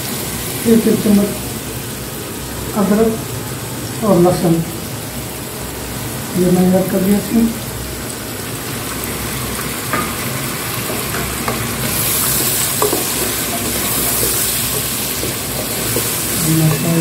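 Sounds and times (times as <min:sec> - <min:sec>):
food sizzling in hot oil: 0:00.0 - 0:17.0
spatula stirring and scraping: 0:10.8 - 0:17.0.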